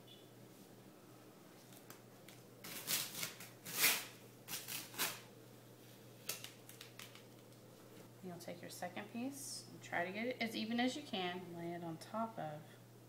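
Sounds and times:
duct tape peeling off table: 2.6s - 5.3s.

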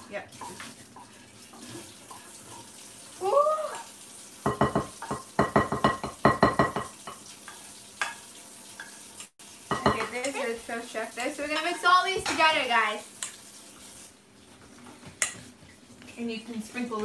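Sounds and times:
wooden spatula tapping pan: 4.4s - 7.2s, 9.7s - 10.4s.

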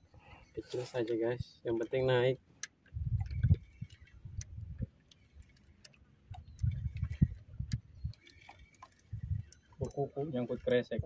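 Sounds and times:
fishing reel clicking: 1.7s - 10.9s
low rumbling: 2.8s - 11.0s.

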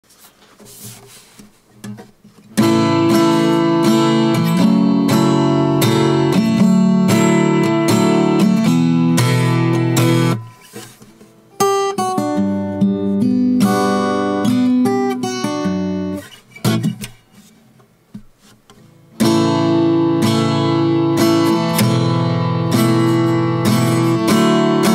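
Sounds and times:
acoustic guitar strummed: 1.7s - 24.9s.

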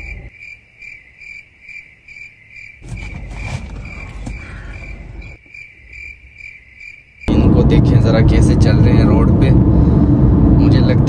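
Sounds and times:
crickets chirping: 0.0s - 7.3s
low rumble: 7.3s - 11.0s.

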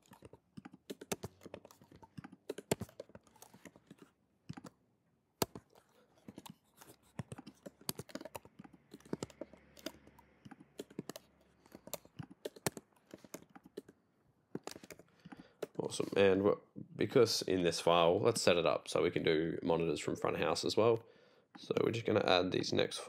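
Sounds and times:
typing on computer keyboard: 0.0s - 4.8s, 5.4s - 14.0s, 14.6s - 15.8s.

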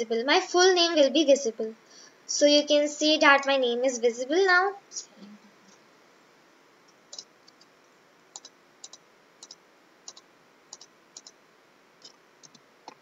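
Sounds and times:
computer mouse clicking: 7.1s - 7.7s, 8.3s - 11.4s, 12.0s - 13.0s.

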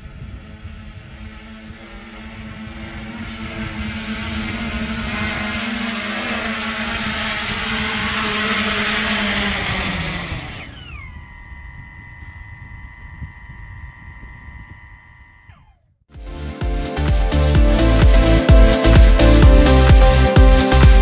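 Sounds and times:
whines gliding down in pitch: 0.0s - 15.8s
drone propellers whining: 0.0s - 21.0s.

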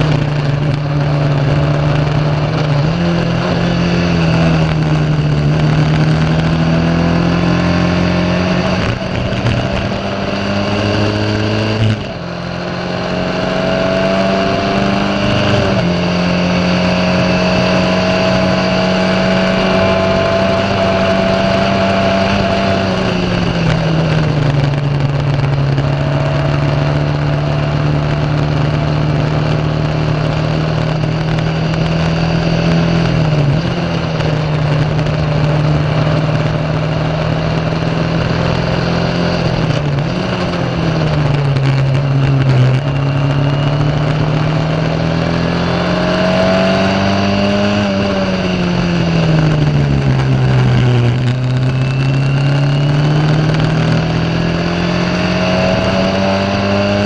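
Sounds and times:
racing car engine at high revs: 0.0s - 57.0s.

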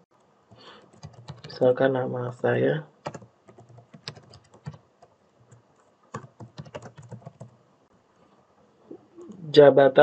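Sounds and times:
keyboard keys clicking: 0.9s - 1.5s, 3.0s - 7.6s.

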